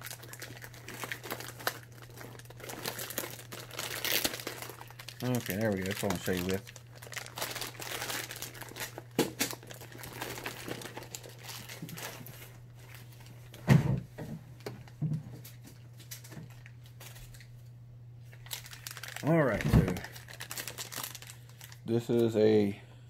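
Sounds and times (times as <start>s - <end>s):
plastic packaging crinkling: 0.0s - 13.6s, 18.3s - 22.3s.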